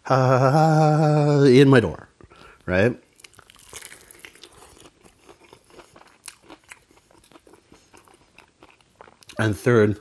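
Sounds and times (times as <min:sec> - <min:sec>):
crunchy chewing: 0:02.3 - 0:09.6.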